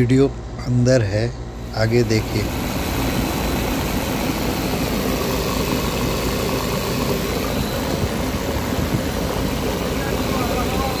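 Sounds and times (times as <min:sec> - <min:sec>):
bus engine idling: 0:01.5 - 0:11.0.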